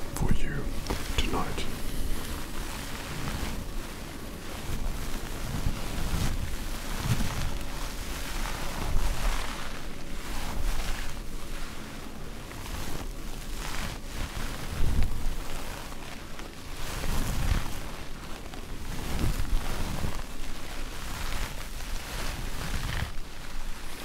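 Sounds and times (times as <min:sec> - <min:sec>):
sponges rubbed and squeezed: 0:00.8 - 0:24.0.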